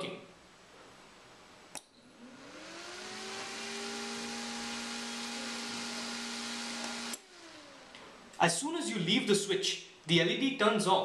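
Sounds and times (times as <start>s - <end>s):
cooling fan whirring: 1.7s - 8.8s.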